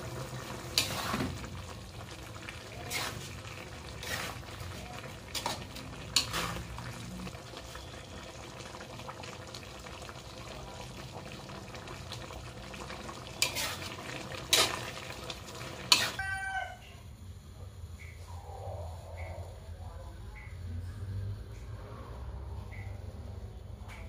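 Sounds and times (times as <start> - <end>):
low simmering sizzle: 0.0 - 24.0
metal spatula scraping a wok: 0.7 - 1.4, 2.8 - 3.3, 3.9 - 4.5, 5.3 - 6.8, 13.4 - 14.9, 15.8 - 16.2.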